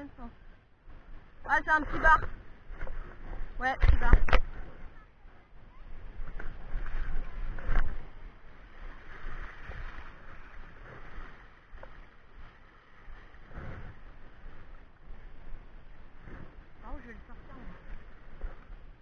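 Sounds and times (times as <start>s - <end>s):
sea water washing over rocks: 5.8s - 19.0s.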